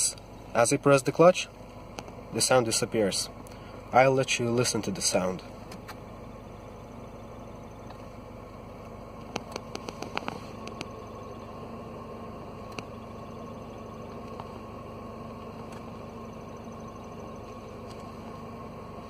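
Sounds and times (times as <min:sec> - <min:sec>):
car engine idling hum: 0:00.0 - 0:19.0
clutch bearing squeaking: 0:08.8 - 0:18.9.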